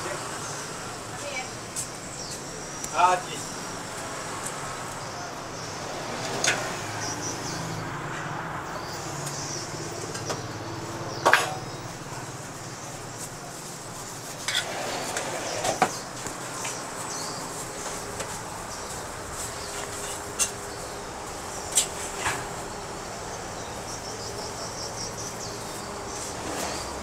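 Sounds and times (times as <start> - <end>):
steady background noise: 0.0 - 27.0
metal utensils clanking on pans: 19.7 - 20.6.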